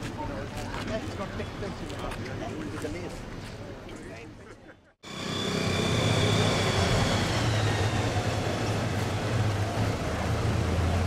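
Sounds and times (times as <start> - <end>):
vehicle engine running: 5.1 - 11.0.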